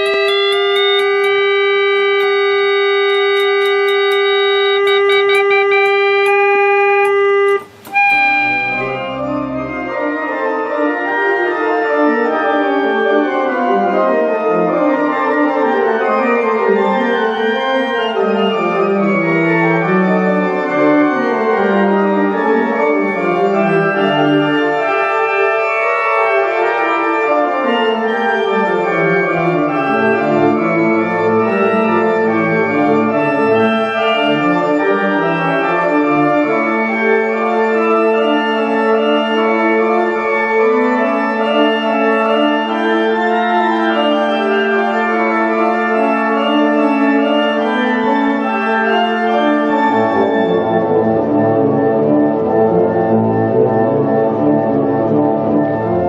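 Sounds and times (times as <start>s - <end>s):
steady held note: 0.0s - 9.9s
pipe organ piece: 0.0s - 56.0s.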